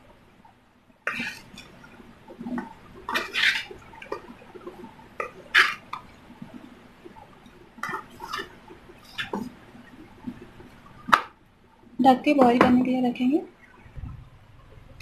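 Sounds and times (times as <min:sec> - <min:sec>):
wooden spatula scraping vegetables in pan: 0:01.1 - 0:01.7, 0:02.4 - 0:06.0, 0:07.8 - 0:09.6.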